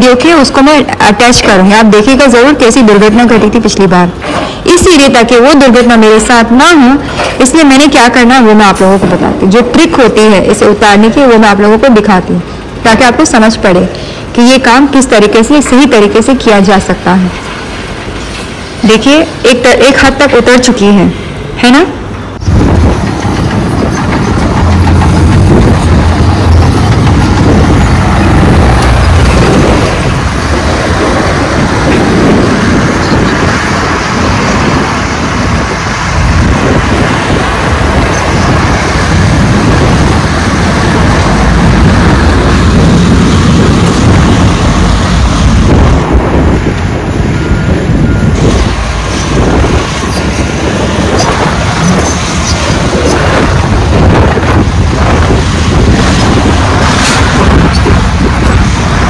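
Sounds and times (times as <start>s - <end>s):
diesel engine rumbling: 20.9s - 59.0s.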